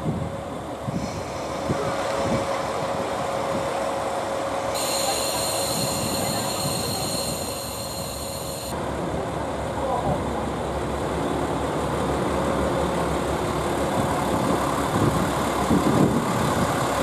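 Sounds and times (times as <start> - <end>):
diesel railcar droning: 0.0 - 17.0
high-pitched steady whine: 4.7 - 8.8.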